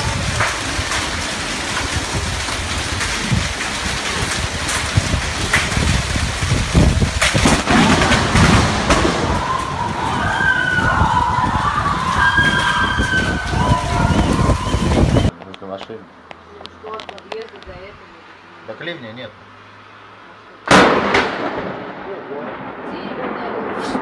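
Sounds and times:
wind noise on microphone: 0:00.0 - 0:15.3
heavy rain: 0:00.0 - 0:15.4, 0:19.7 - 0:24.0.

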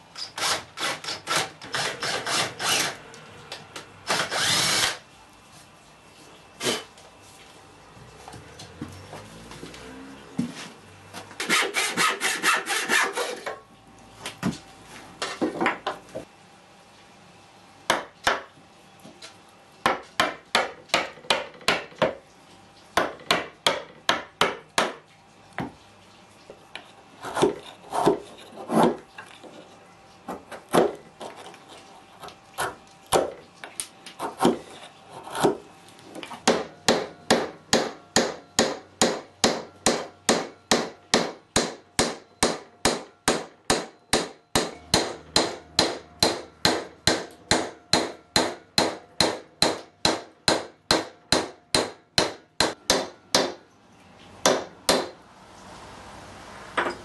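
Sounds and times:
chisel chopping into wood: 0:36.4 - 0:53.6, 0:54.4 - 0:55.2.

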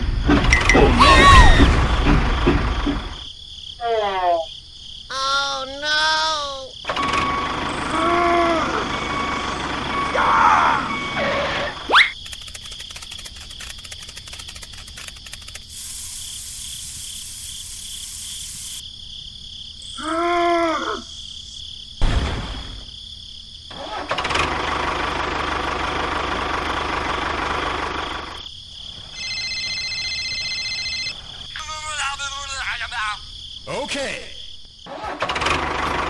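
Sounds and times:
rapid clicking: 0:12.2 - 0:15.9
hiss: 0:14.2 - 0:18.8.

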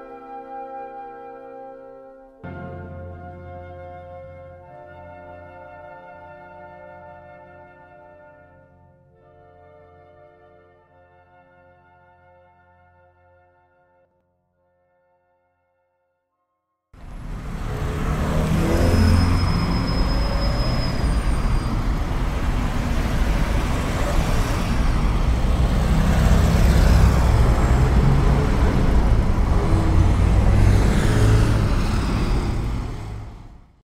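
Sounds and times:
large vehicle engines rumbling: 0:17.0 - 0:33.8
street noise: 0:17.0 - 0:33.8.

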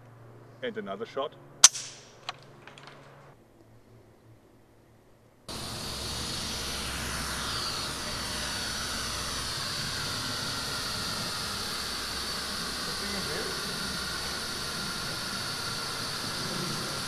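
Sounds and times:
drone propellers whining: 0:05.5 - 0:17.0.

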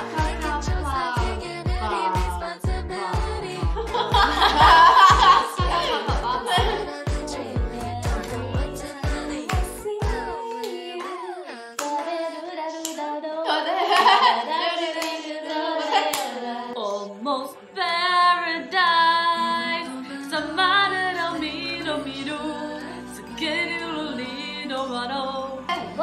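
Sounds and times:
woman singing slow melody: 0:00.0 - 0:26.0
hand claps: 0:09.4 - 0:10.8, 0:11.8 - 0:12.2.

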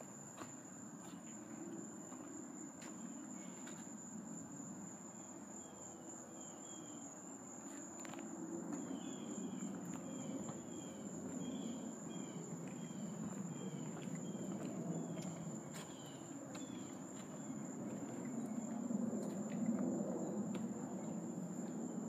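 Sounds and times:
footsteps on wooden boardwalk: 0:00.0 - 0:03.9, 0:09.7 - 0:19.9.

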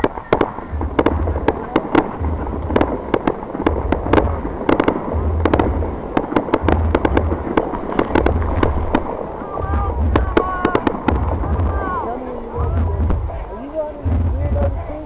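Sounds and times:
fireworks popping and crackling: 0:00.0 - 0:15.0
low rumble: 0:00.0 - 0:15.0.

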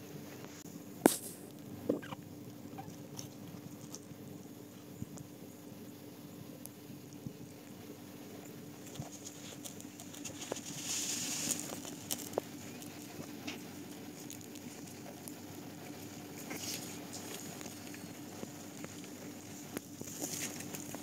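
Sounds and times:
faint low hum: 0:00.0 - 0:21.0
puppies rustling on blanket: 0:08.6 - 0:21.0.

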